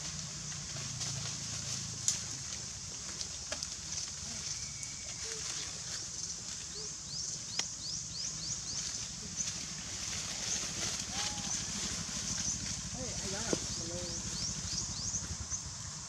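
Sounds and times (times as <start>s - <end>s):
high insect drone: 0.0s - 16.0s
twigs crackling: 0.1s - 14.6s
bird chirping: 12.2s - 15.7s.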